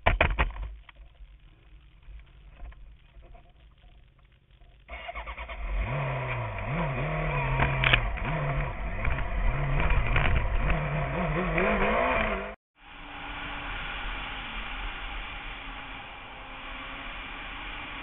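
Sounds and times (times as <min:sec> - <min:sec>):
motorcycle engine revving: 0:04.9 - 0:18.0.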